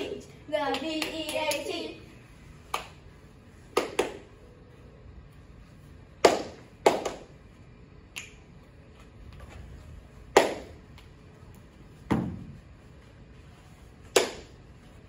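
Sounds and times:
hand claps: 0.6 - 1.7, 2.7 - 3.0, 3.7 - 4.3, 6.2 - 7.3, 10.3 - 11.1, 14.0 - 14.6.

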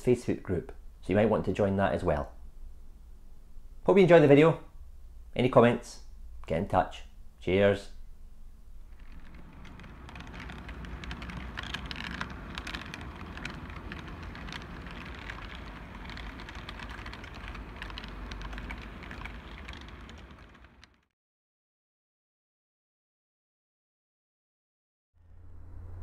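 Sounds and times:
model train running on track: 9.0 - 21.0.

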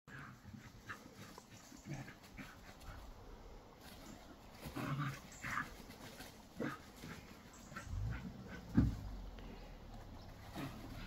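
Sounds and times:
dogs playing: 0.1 - 11.0.

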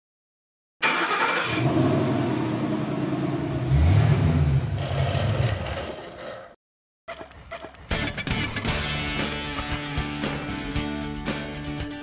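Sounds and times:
car engine starting and revving: 0.8 - 6.2.

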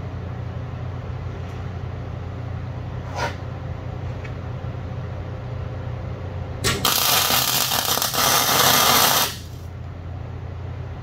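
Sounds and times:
welder arc crackling and hissing: 6.6 - 9.7.

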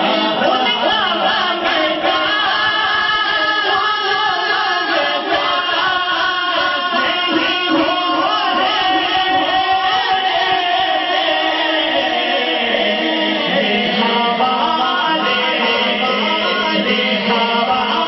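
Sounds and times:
man singing over loudspeaker: 0.0 - 18.0.

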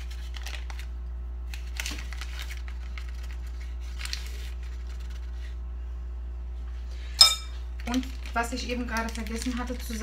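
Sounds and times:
paper sachet crinkling: 0.0 - 5.6, 7.8 - 10.0
steady low hum: 0.0 - 10.0.

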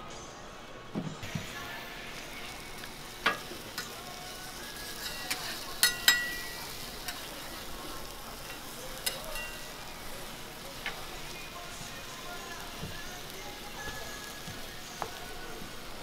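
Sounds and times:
food sizzling on a griddle: 1.2 - 16.0
metal spatula clacking on griddle: 3.2 - 4.0, 4.8 - 7.6, 8.4 - 9.9.

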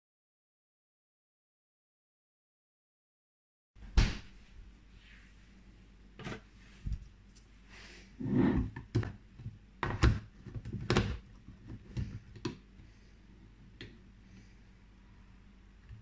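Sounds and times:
plastic clicks and knocks: 8.8 - 12.6.

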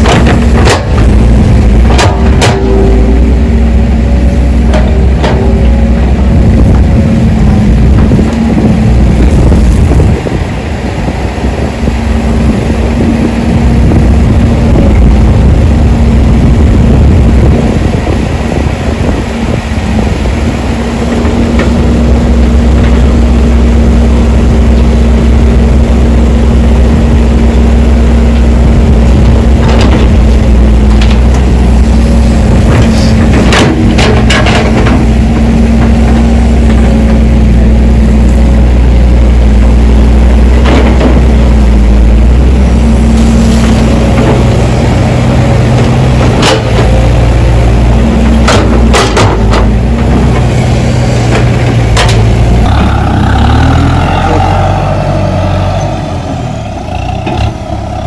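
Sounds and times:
excavator diesel engine humming: 0.0 - 58.0
sharp knocks: 48.4 - 49.7.

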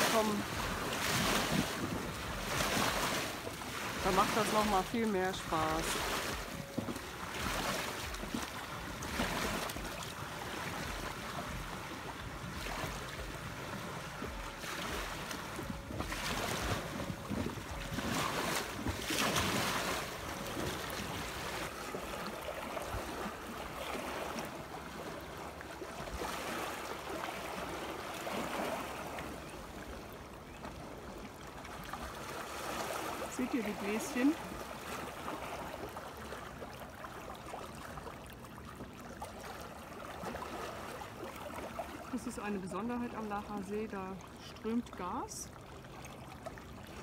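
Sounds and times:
wind rumbling on microphone: 0.0 - 4.2, 5.6 - 23.9
lake water lapping on stony shore: 0.0 - 47.0.

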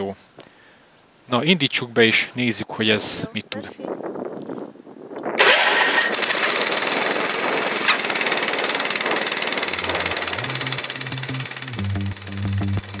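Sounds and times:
tiller engine starting and running: 5.4 - 13.0.

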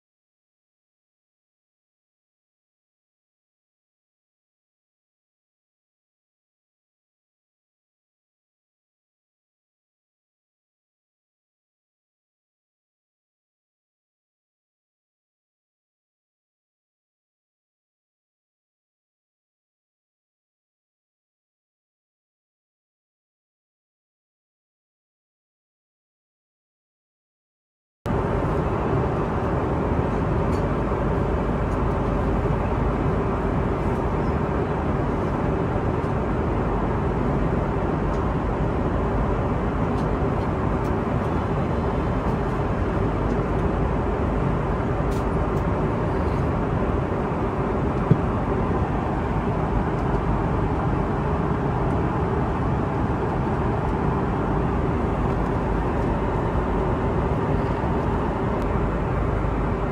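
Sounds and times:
airplane cabin rush of airflow: 28.1 - 59.9
faint hum: 28.1 - 59.9.

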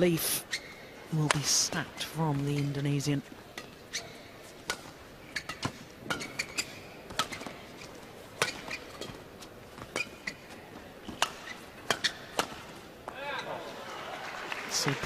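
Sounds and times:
shoes squeaking on court floor: 0.0 - 13.7
rackets striking shuttlecock: 11.0 - 13.2.

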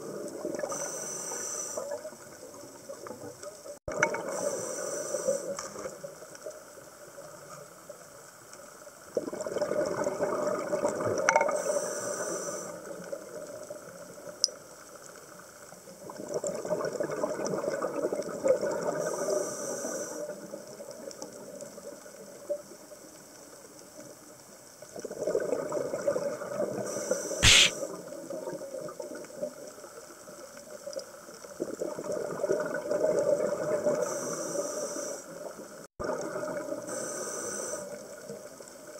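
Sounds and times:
regulator hiss: 27.4 - 27.7
sharp knock: 27.4 - 27.7.

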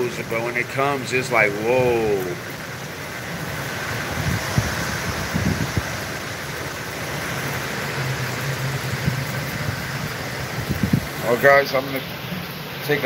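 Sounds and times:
wind and rain rushing: 0.0 - 13.0
gusts thumping microphone: 3.4 - 7.7, 8.5 - 11.3.

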